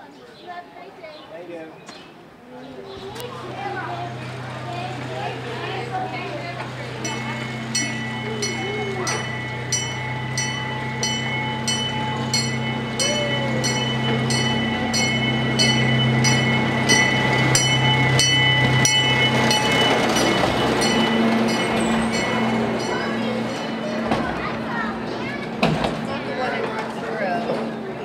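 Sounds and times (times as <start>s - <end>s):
train engine humming: 2.3s - 28.0s
bell ringing: 5.3s - 24.8s.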